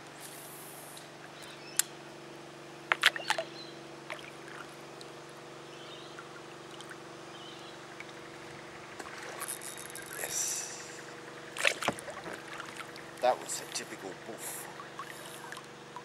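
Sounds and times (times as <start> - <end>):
steady low hum: 0.0 - 16.0
fish thrashing in water: 8.9 - 10.2, 11.5 - 13.2.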